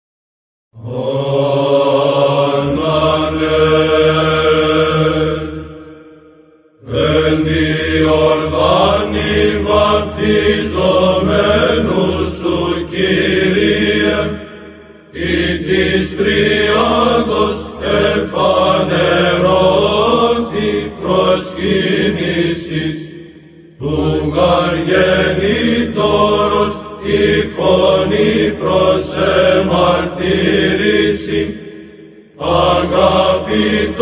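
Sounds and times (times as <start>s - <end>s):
held vocal drone: 0.8s - 34.0s
male voices chanting: 15.2s - 31.7s.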